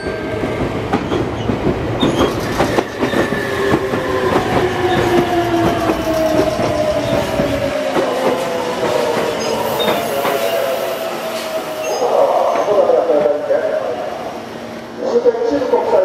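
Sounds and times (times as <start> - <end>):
train wheels clicking over rail joints: 0.4 - 10.5.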